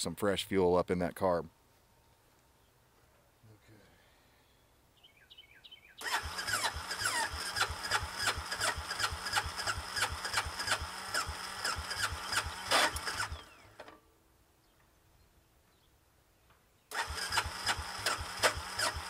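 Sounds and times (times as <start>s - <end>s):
electric starter cranking engine: 6.0s - 13.9s, 16.9s - 19.0s.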